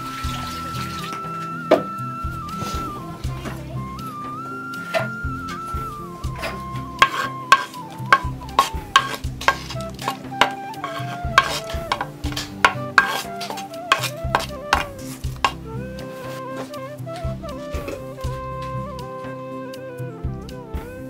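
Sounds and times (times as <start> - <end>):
sustained bass notes: 0.0 - 7.1, 8.0 - 10.4, 17.0 - 19.2
gentle flute melody: 0.0 - 21.0
spoon knocking clay cookware: 7.0 - 15.6.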